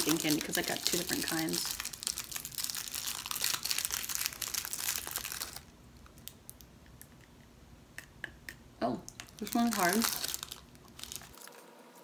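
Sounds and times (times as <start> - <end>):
candy wrapper crinkling: 0.0 - 7.1, 9.1 - 11.6.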